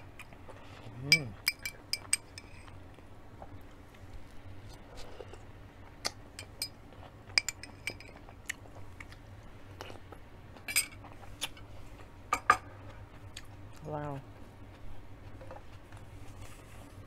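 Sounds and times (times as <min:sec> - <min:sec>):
metal spoon clinking on glass: 0:01.1 - 0:02.6
person chewing: 0:04.8 - 0:12.1, 0:12.8 - 0:13.8.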